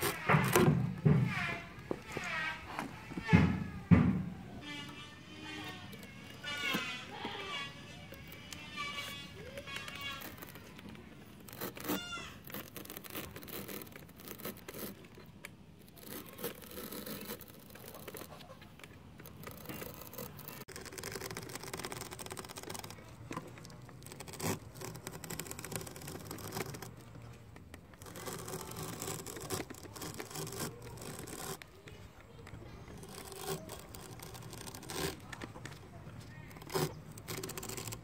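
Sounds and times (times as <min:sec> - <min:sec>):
blade slicing through rubber: 0:00.0 - 0:38.0.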